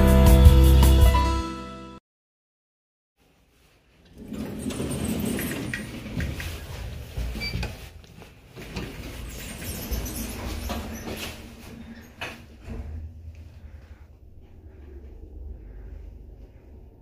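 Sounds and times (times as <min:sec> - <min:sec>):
elevator doors sliding open: 0:04.1 - 0:13.3
scratchy rattle of doors: 0:04.1 - 0:13.3.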